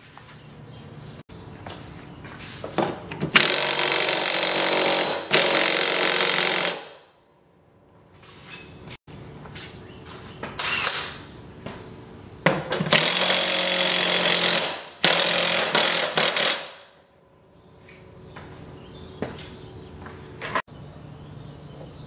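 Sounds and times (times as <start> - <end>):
impact wrench hammering: 12.5 - 17.0.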